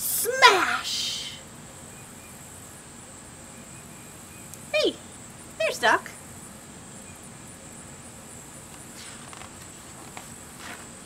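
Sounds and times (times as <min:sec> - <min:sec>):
steady low hiss: 0:00.0 - 0:11.0
faint ticks: 0:04.5 - 0:04.7.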